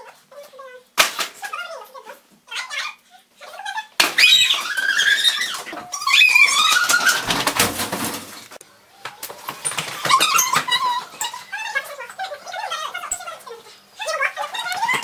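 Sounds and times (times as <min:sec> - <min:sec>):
sped-up girls squealing: 0:03.7 - 0:07.4.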